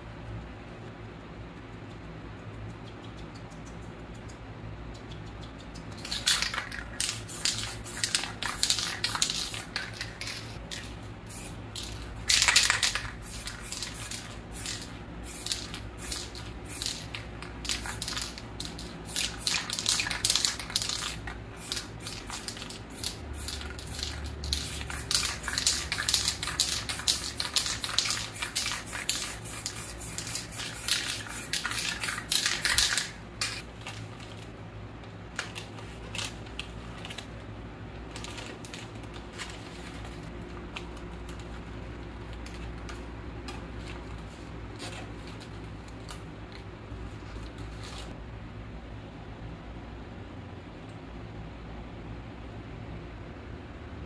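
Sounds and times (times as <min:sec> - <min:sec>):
steady low hum: 0:00.0 - 0:54.0
spray paint can hissing: 0:06.0 - 0:10.6, 0:11.2 - 0:33.6.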